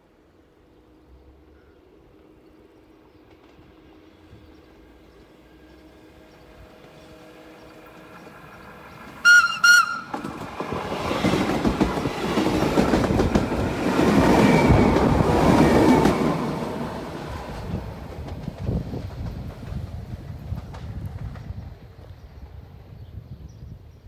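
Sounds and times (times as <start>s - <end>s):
train wheel and rail noise: 0.0s - 24.0s
train horn blasts: 9.2s - 10.2s.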